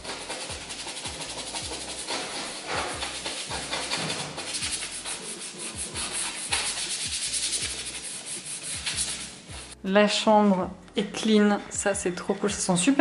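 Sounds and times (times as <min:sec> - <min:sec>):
background music with beat: 0:00.0 - 0:09.8
scrubbing floor by hand: 0:00.0 - 0:09.8.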